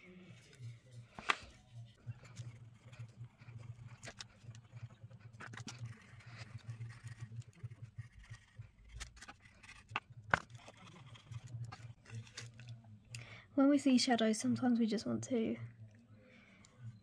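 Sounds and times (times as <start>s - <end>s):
pencil scratching on paper: 1.9s - 12.0s.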